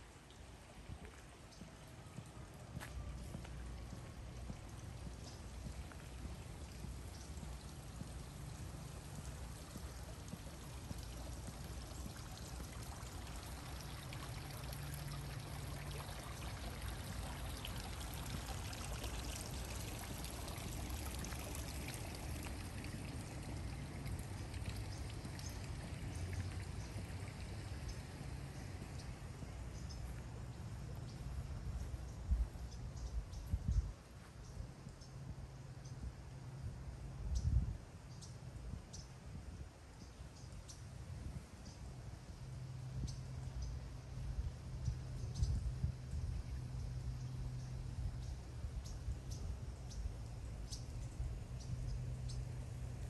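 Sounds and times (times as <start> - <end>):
running and splashing water: 0.0 - 31.9.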